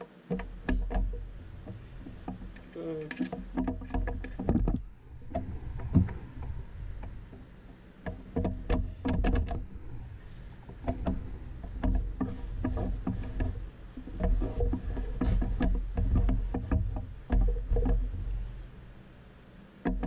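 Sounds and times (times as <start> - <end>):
hand tools clicking on metal: 2.2 - 4.5
low rumble: 4.6 - 15.2.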